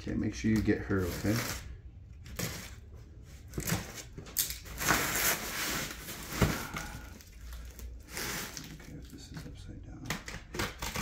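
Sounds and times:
scissors cutting packing tape: 10.2s - 11.0s.

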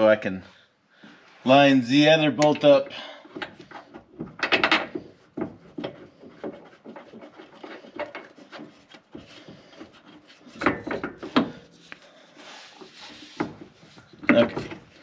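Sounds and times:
metal bracket and bolts rattling: 3.4s - 9.2s, 10.4s - 11.7s, 13.2s - 15.0s.

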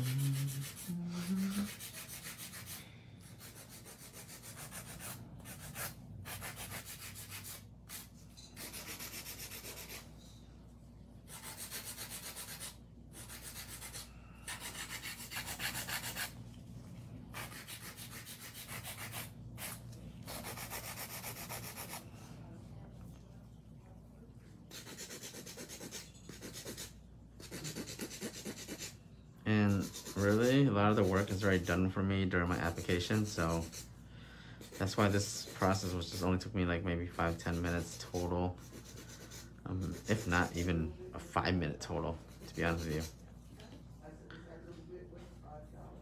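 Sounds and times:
nail file rasping on nails: 0.0s - 10.1s, 11.3s - 16.4s, 17.3s - 22.0s, 24.7s - 29.0s, 29.6s - 31.9s, 32.5s - 33.9s, 34.6s - 36.3s, 37.1s - 40.7s, 42.3s - 43.2s.

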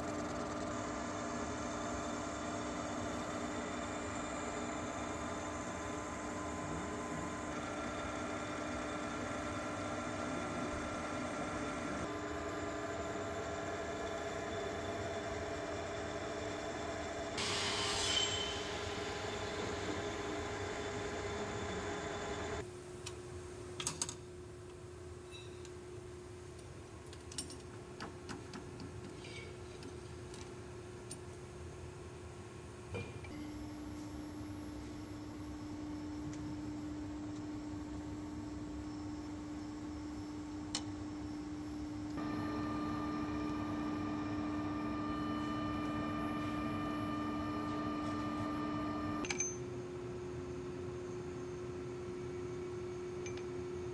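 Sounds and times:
machinery electrical hum: 0.0s - 28.3s, 29.2s - 53.9s
metal lathe motor humming: 1.0s - 17.4s, 42.1s - 49.3s.

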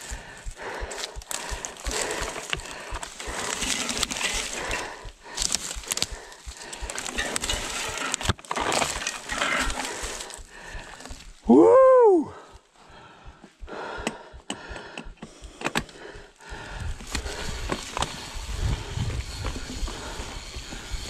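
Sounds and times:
bike tyres rolling on dirt: 0.0s - 11.6s, 16.0s - 21.0s
bike chain and frame rattling: 0.1s - 11.2s, 16.8s - 21.0s.

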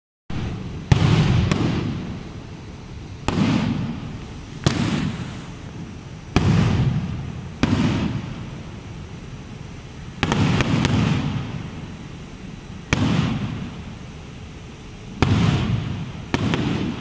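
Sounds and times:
firework shells bursting: 0.4s - 2.6s, 3.2s - 9.2s, 10.2s - 12.0s, 15.2s - 17.0s.

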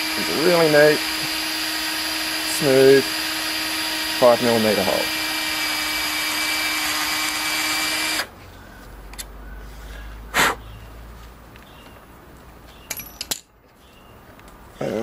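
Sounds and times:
cordless drill motor running: 0.0s - 8.3s.

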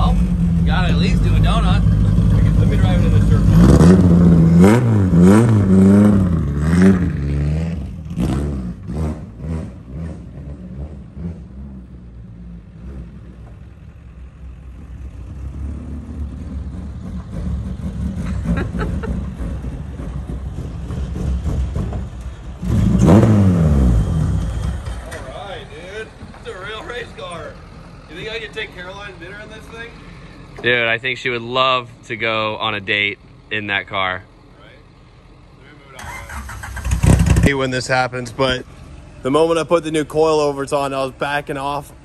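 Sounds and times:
race car engine revving: 0.0s - 13.5s, 14.8s - 25.5s, 36.0s - 41.7s.

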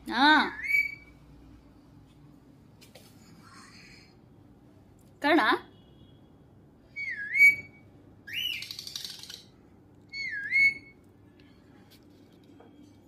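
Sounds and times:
parrot whistling: 0.5s - 1.1s, 7.0s - 8.9s, 10.1s - 11.0s.

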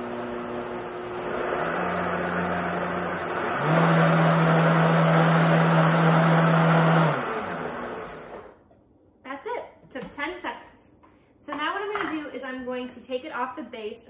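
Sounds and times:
blender motor: 0.0s - 8.6s.

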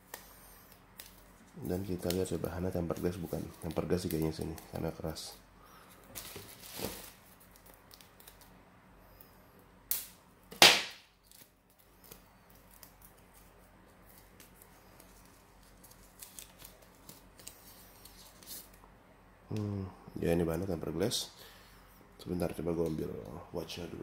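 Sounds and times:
handling of paper wrapping: 0.7s - 8.4s, 11.2s - 18.8s.

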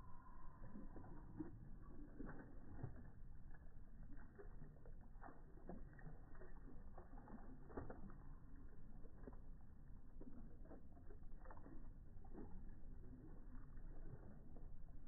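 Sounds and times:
dogs splashing in water: 0.2s - 15.0s.

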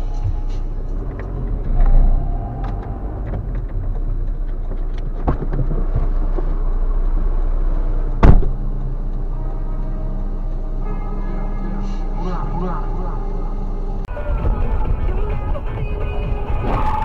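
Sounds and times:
car engine and road rumble: 0.0s - 17.0s
loud sharp thump: 8.2s - 8.6s.

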